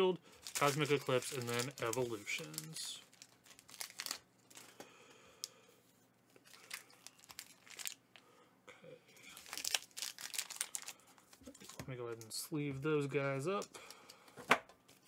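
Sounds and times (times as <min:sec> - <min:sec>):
plastic packaging rustling: 0:00.3 - 0:04.8, 0:06.4 - 0:08.0, 0:09.2 - 0:12.3.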